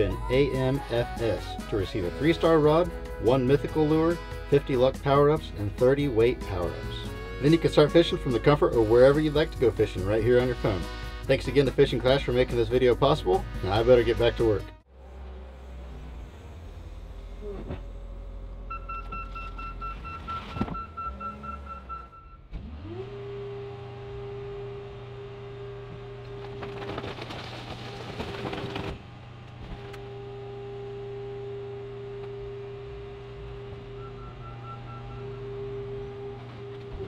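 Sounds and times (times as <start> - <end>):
car crusher machinery humming: 14.9 - 37.0.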